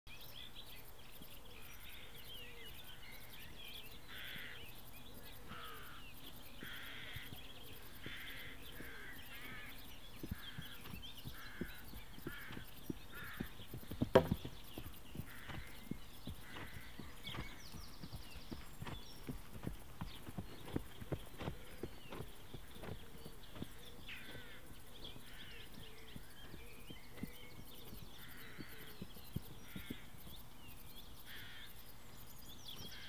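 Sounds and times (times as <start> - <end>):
birds chirping: 0.1 - 33.0
horse hoofbeats on grass: 6.4 - 31.1.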